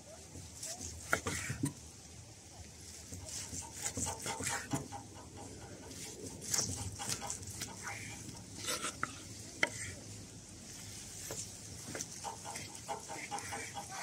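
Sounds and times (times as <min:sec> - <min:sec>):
knife scraping on wooden board: 0:00.6 - 0:01.8, 0:03.0 - 0:10.0, 0:10.8 - 0:14.0
knife sawing through steak: 0:03.3 - 0:10.0, 0:11.9 - 0:14.0.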